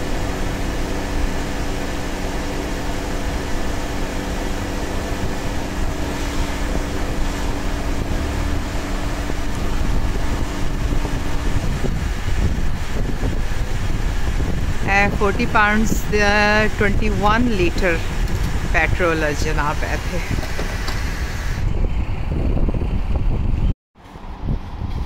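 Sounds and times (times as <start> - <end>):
fuel rushing hiss: 0.0 - 14.9, 20.0 - 21.7
fuel pump humming: 0.0 - 23.3.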